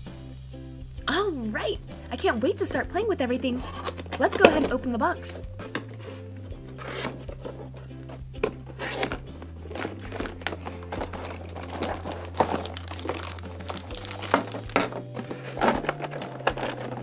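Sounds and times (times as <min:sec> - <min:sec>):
soft background music: 0:00.0 - 0:17.0
cardboard box being opened: 0:03.6 - 0:04.7, 0:05.7 - 0:17.0
plastic bags crinkling: 0:03.6 - 0:04.8, 0:05.8 - 0:17.0.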